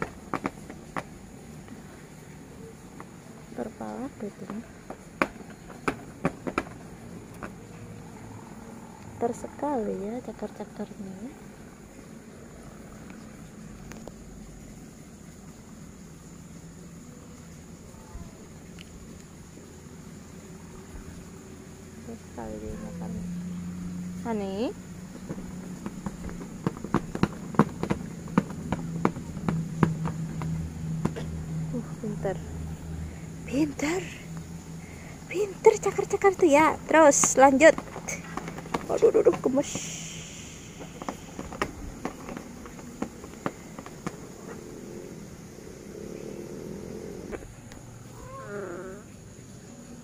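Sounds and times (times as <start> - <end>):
cat meowing: 48.1 - 49.0.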